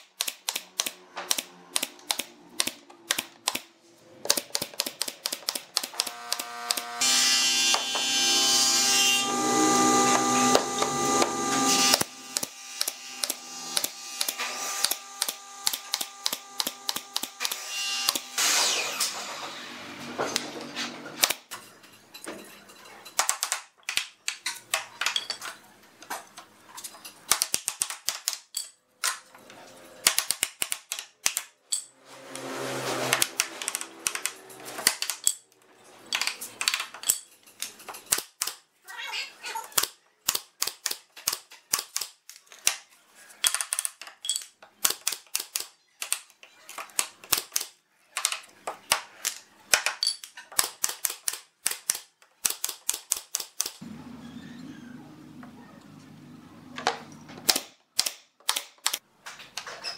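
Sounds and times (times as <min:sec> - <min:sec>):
power tool running: 0:06.0 - 0:20.0.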